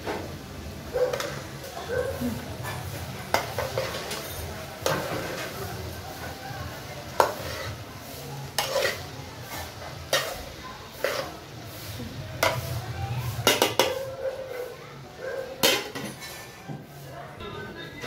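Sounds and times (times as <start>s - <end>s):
metal spatula scraping a pot: 2.6s - 6.3s, 7.1s - 14.2s, 15.6s - 16.6s.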